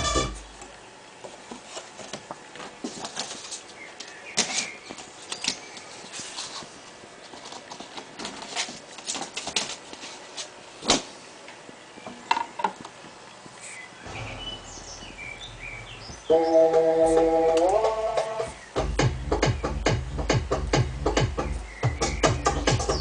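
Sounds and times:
vinyl record music: 0:00.0 - 0:00.6, 0:14.1 - 0:23.0
cardboard record sleeve rustling: 0:01.3 - 0:11.1.

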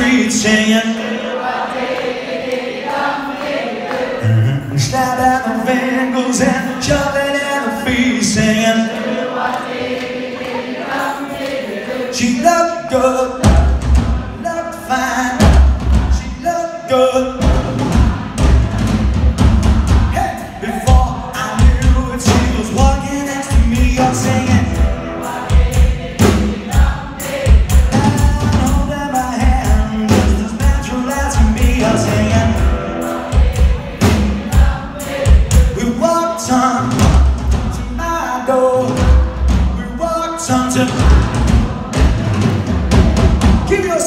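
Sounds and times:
man singing: 0:00.0 - 0:01.3, 0:04.2 - 0:09.2, 0:12.0 - 0:18.9, 0:19.6 - 0:42.2, 0:42.9 - 0:44.0
rock band playing: 0:17.2 - 0:44.0.

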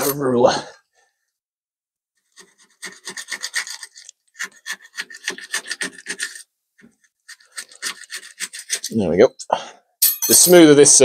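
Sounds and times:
ruler scraping steel vise jaw: 0:00.0 - 0:00.2, 0:02.3 - 0:09.0.

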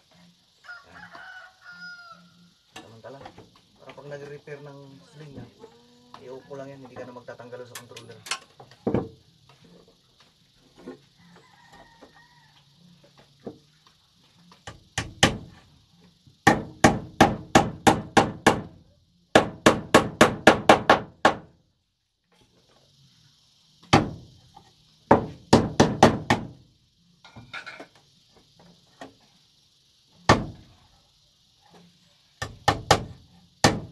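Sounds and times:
hammer blows on nails: 0:32.4 - 0:33.9.

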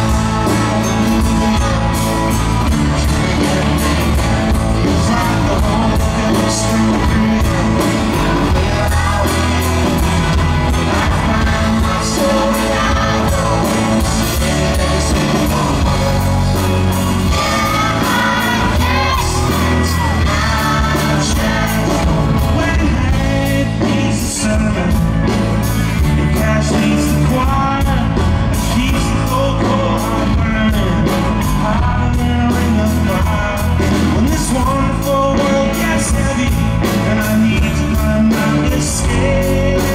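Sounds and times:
voices singing together: 0:00.0 - 0:24.6
live band playing: 0:00.0 - 0:39.9.

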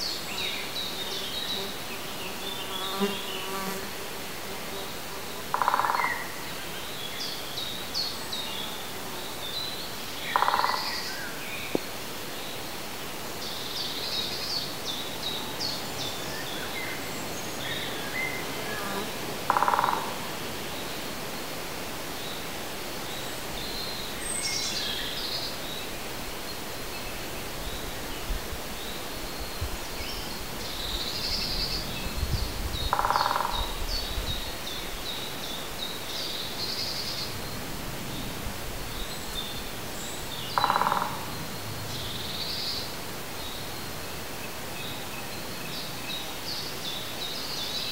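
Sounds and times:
background hiss: 0:00.0 - 0:47.9.

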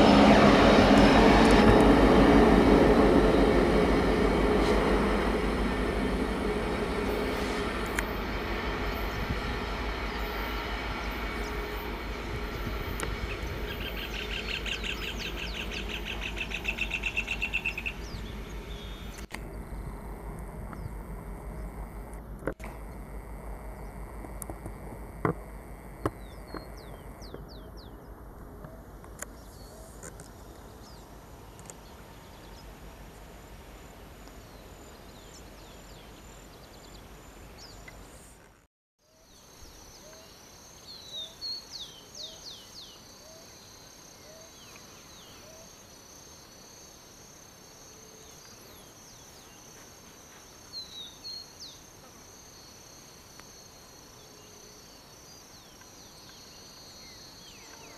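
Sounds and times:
high insect trill: 0:39.1 - 0:57.9.

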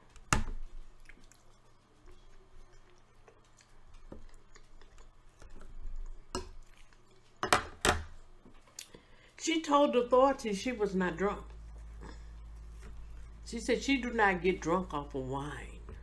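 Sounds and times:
wet chewing sounds: 0:00.0 - 0:07.4.

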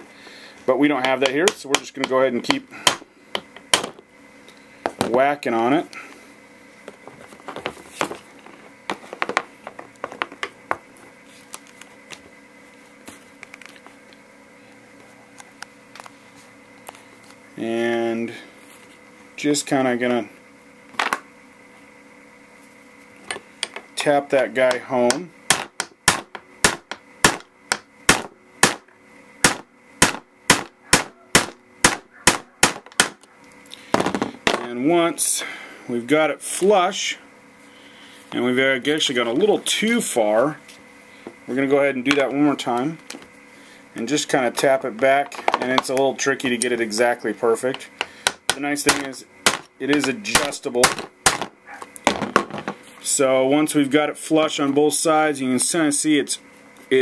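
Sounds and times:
hammer tapping metal punch: 0:01.0 - 0:04.0.

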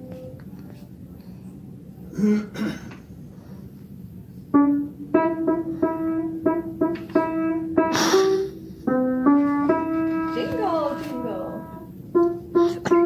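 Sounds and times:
slow piano melody: 0:00.0 - 0:00.6, 0:04.3 - 0:13.0.

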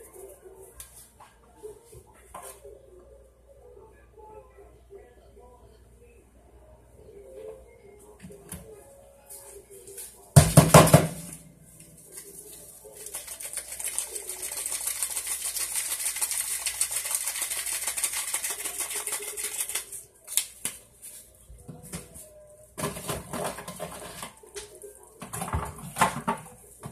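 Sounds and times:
seasoning being shaken: 0:12.0 - 0:21.2.

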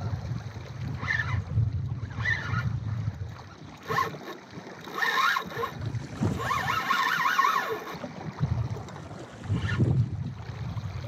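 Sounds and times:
wind on microphone: 0:00.0 - 0:04.2, 0:05.0 - 0:11.0
water sloshing against hull: 0:00.0 - 0:11.0
fishing reel whining: 0:00.9 - 0:02.8, 0:03.6 - 0:08.1, 0:09.4 - 0:09.9.

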